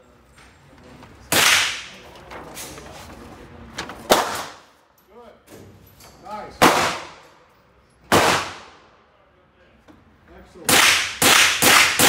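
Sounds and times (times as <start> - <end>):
gunshots echoing indoors: 1.3 - 2.0, 4.1 - 4.7, 6.6 - 7.4, 8.1 - 9.0, 10.7 - 12.0.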